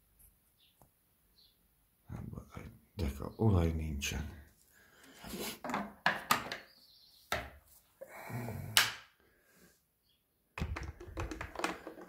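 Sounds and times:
plastic cap clicks and knocks: 10.6 - 12.0
small rattling handling noises: 10.6 - 12.0.

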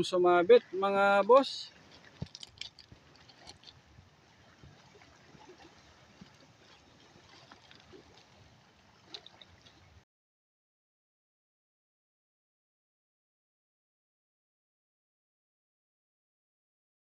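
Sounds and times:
sea water lapping at shore: 0.0 - 10.0.

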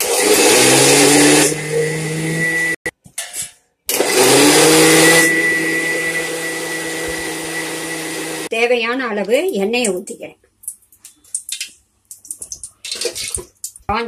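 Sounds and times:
mixer grinder motor whining: 0.0 - 2.9, 3.9 - 8.5.

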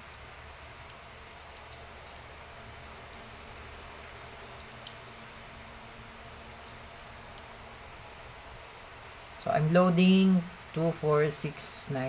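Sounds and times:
small metal clicks: 0.0 - 2.3, 2.9 - 3.9, 4.5 - 5.5, 6.6 - 7.6.

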